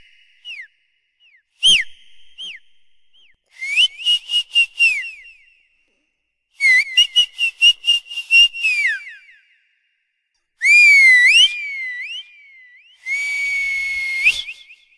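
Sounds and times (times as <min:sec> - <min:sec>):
high-pitched whistling: 0:01.6 - 0:05.7, 0:10.6 - 0:14.9.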